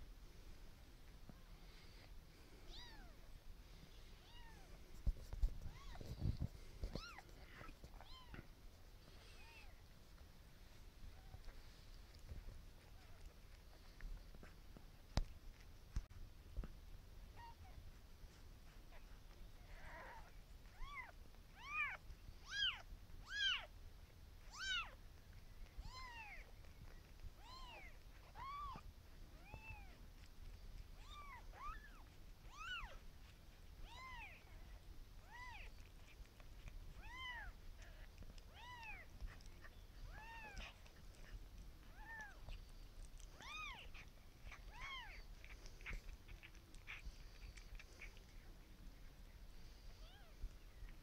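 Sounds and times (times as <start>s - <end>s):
kitten mewing: 36.9s - 48.2s.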